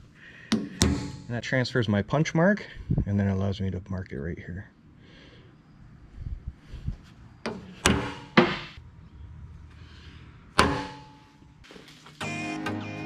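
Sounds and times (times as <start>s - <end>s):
hammer striking steel punch: 0.5s - 1.3s, 7.5s - 8.7s, 10.6s - 11.3s.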